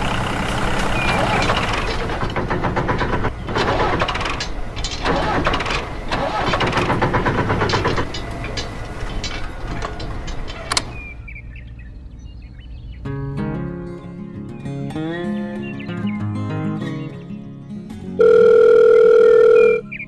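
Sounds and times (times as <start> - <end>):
tractor engine chugging: 0.0 - 11.1.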